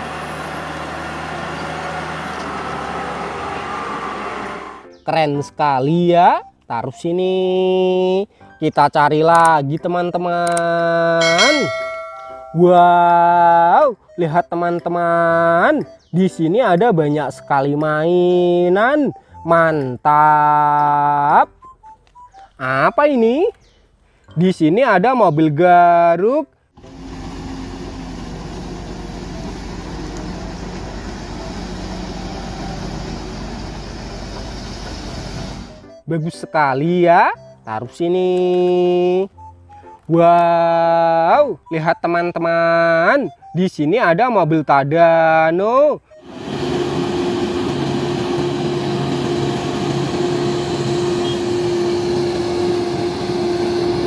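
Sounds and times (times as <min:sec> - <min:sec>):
excavator diesel engine running: 0:00.0 - 0:04.8, 0:26.8 - 0:36.0, 0:46.1 - 0:54.0.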